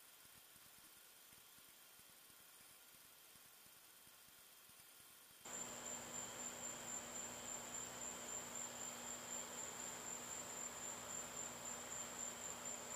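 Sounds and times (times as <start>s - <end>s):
faint hiss: 0.0s - 12.9s
insects trilling: 5.5s - 12.9s.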